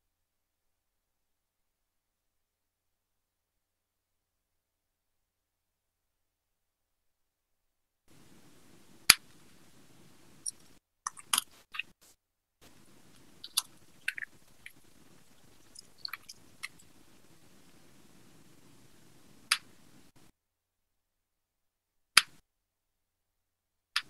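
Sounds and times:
scattered clicks: 8.1s - 9.5s, 12.6s - 20.2s
faint hiss: 8.1s - 20.3s.

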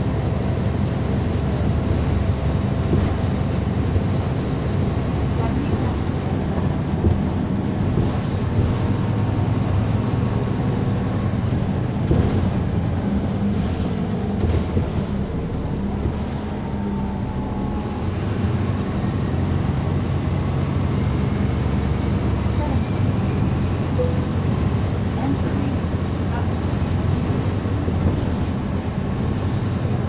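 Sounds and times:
bus diesel engine droning: 0.0s - 30.0s
knocks and rattles: 1.8s - 3.6s, 5.4s - 9.1s, 11.4s - 15.4s.

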